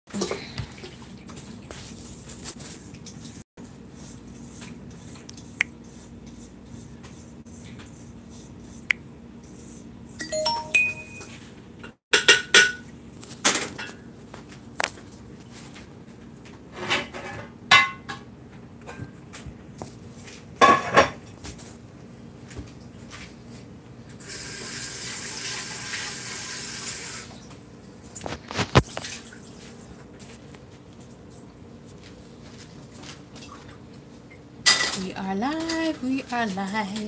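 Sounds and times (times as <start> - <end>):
dishes clinking and clattering: 12.1 - 12.8, 20.6 - 21.3, 34.6 - 35.0.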